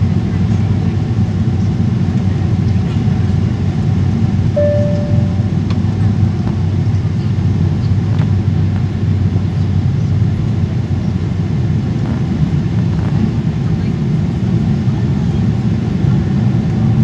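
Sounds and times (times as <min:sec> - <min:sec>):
airliner cabin rumble: 0:00.0 - 0:17.0
brief single tone: 0:04.6 - 0:05.6.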